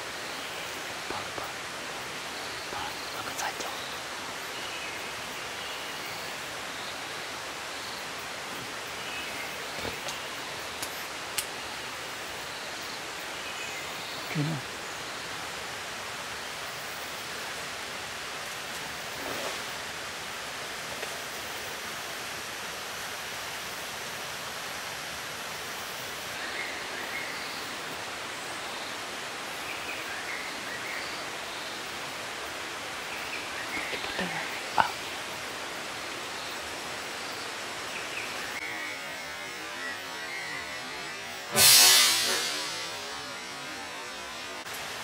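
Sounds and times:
forest ambience hiss: 0.0s - 45.0s
brief sharp sound: 41.5s - 43.0s.

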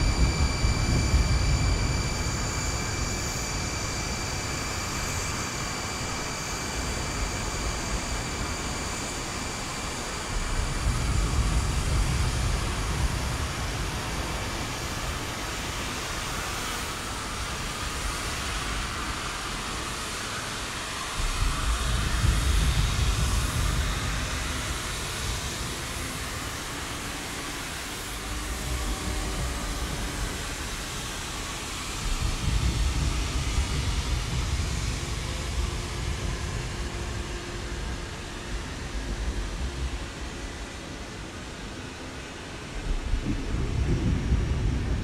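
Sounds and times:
deep rumble: 0.0s - 4.3s, 21.1s - 26.6s, 28.1s - 40.8s, 42.8s - 45.0s
industrial hiss with high whines: 0.0s - 45.0s.

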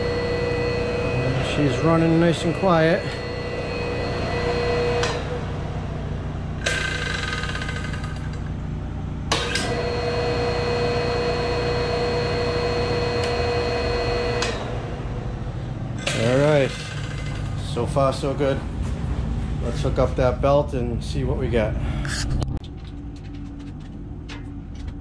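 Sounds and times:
electric motor humming with whine: 0.0s - 8.6s, 9.3s - 17.0s.

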